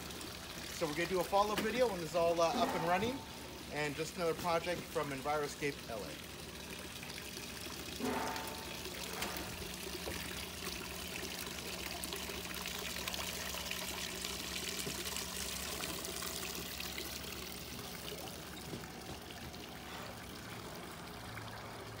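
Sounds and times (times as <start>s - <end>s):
water pouring into pond: 0.0s - 22.0s.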